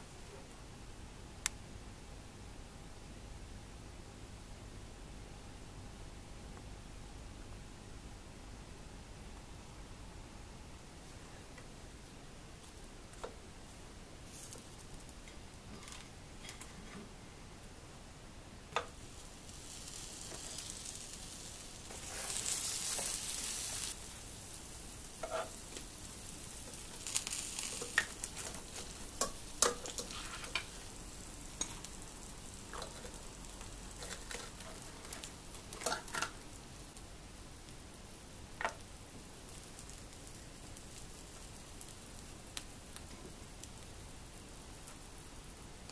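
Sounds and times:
sandwich toaster sizzling: 0:18.8 - 0:45.4.

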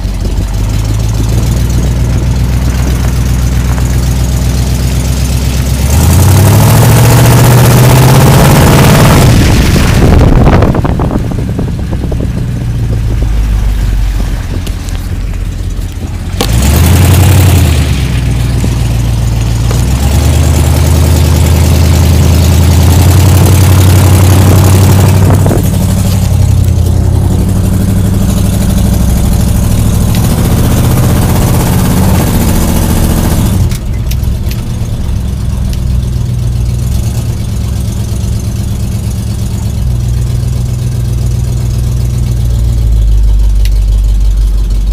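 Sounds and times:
truck engine revving: 0:00.0 - 0:44.9.

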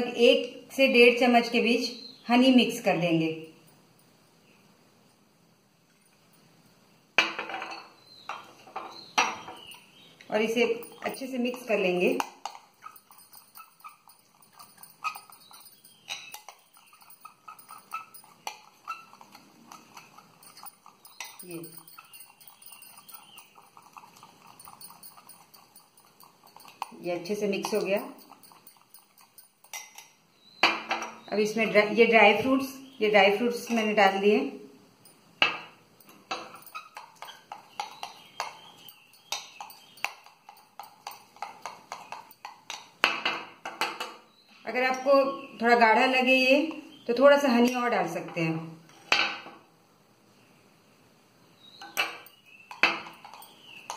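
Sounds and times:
spoon stirring in bowl: 0:10.6 - 0:30.2, 0:35.1 - 0:44.2, 0:51.8 - 0:53.9.

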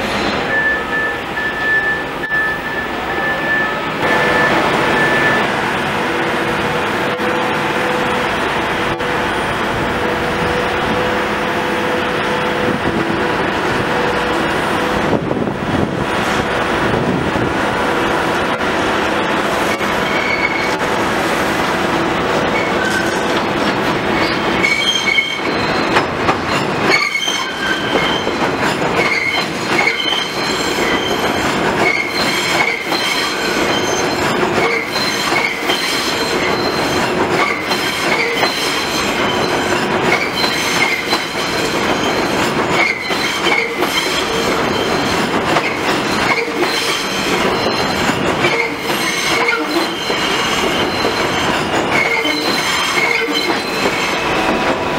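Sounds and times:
subway train rumble: 0:00.0 - 0:54.9
high-pitched wheel squeals: 0:20.0 - 0:20.8, 0:24.2 - 0:28.4, 0:29.0 - 0:45.2, 0:46.1 - 0:54.3
wheels clacking over rail joints: 0:22.4 - 0:54.9.

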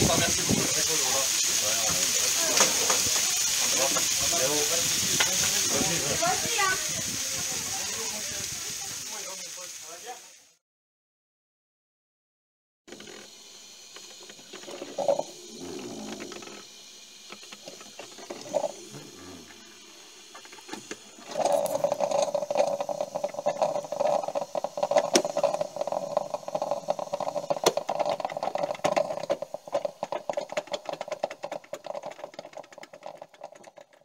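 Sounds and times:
small machine rattling: 0:12.9 - 0:34.0.

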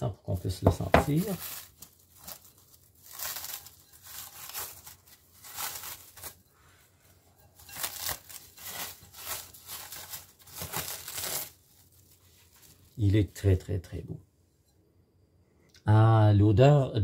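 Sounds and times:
cling film crinkling: 0:00.3 - 0:06.5, 0:07.3 - 0:13.6.

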